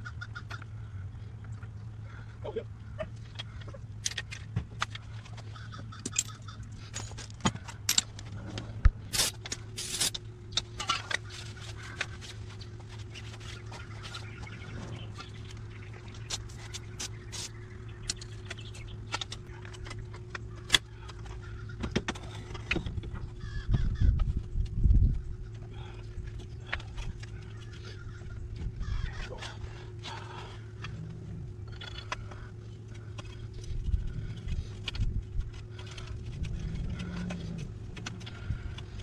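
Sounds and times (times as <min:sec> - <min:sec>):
steady low hum: 0:00.0 - 0:39.0
metal tools clinking and scraping: 0:03.6 - 0:15.4.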